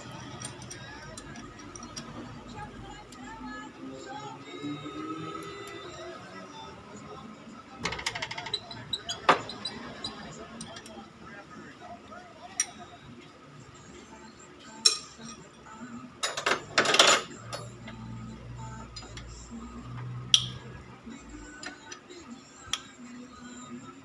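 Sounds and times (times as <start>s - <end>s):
metal tools clinking: 0.2s - 2.1s, 16.2s - 17.8s.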